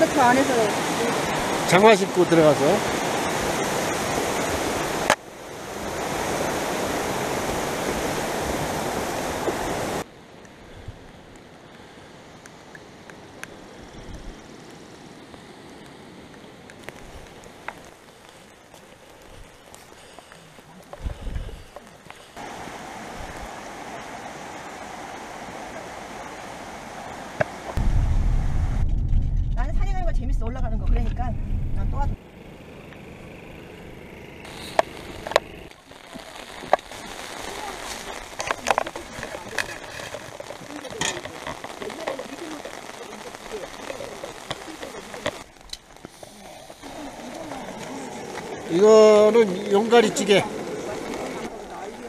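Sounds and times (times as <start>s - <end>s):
river rushing over rapids: 0.0s - 10.4s, 21.7s - 27.8s, 34.5s - 52.0s
low rumble: 27.8s - 32.2s.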